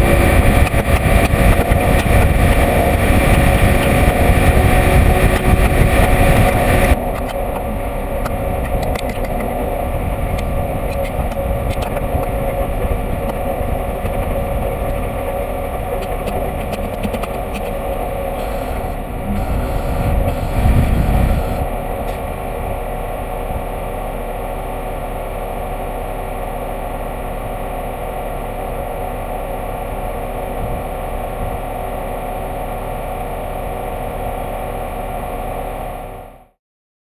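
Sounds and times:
truck rolling over rough ground: 0.0s - 26.4s
diesel truck engine idling: 0.0s - 36.4s.

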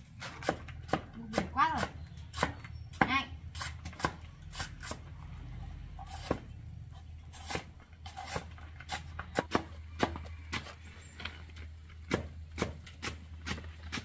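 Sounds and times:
knife chopping on wooden block: 0.2s - 5.0s.

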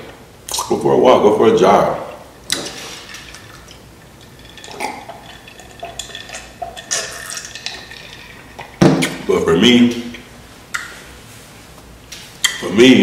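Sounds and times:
man gulping: 2.4s - 9.3s
liquid sloshing in jar: 2.5s - 9.3s.

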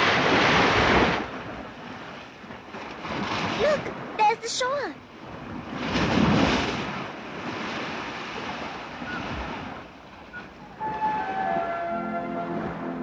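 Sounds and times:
soft background music: 10.7s - 13.0s.

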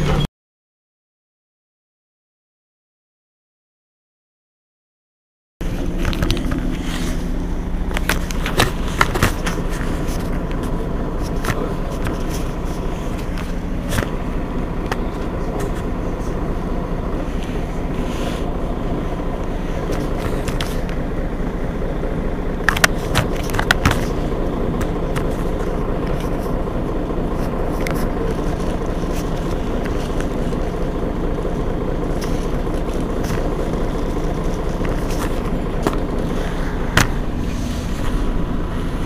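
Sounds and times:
bus engine idling: 5.6s - 39.0s
sharp clicks and knocks: 7.9s - 14.2s, 22.6s - 26.6s.

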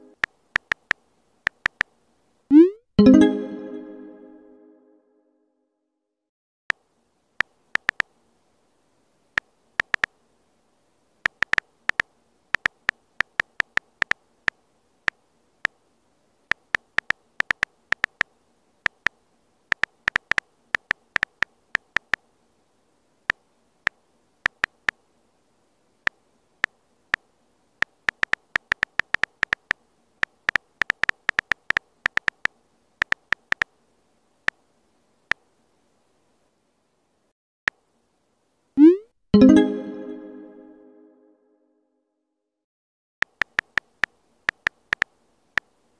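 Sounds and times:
phone keyboard clicks: 0.2s - 1.9s, 7.4s - 8.1s, 9.4s - 10.1s, 11.2s - 14.2s, 16.5s - 18.3s, 18.9s - 22.2s, 24.5s - 25.0s, 27.8s - 33.7s, 43.2s - 45.7s.

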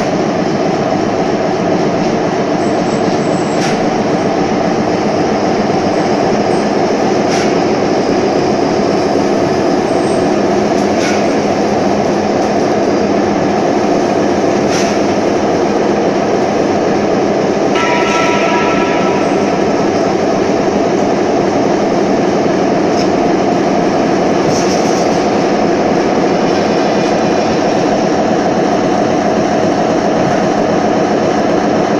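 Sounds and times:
heavy machine rumble: 0.0s - 31.2s
short steady tone: 17.7s - 21.0s.

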